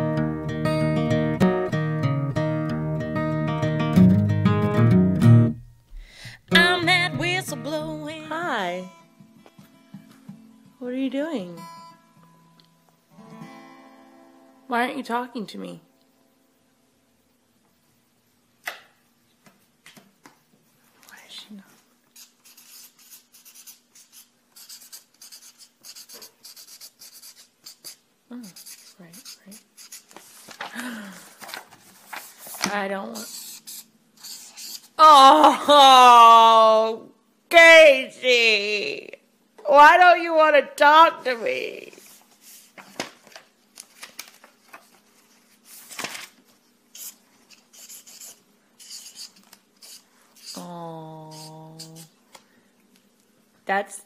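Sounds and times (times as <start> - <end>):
pen scratching on paper: 22.2 - 30.1, 33.2 - 34.9, 46.9 - 50.6
person humming: 35.0 - 37.0, 50.5 - 52.1.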